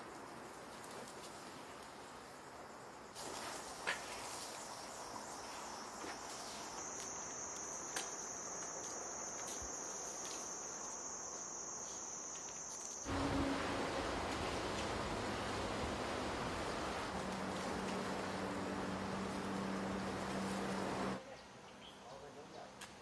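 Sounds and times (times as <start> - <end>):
insects chirring: 0.0 - 22.0
even rushing noise: 13.1 - 21.2.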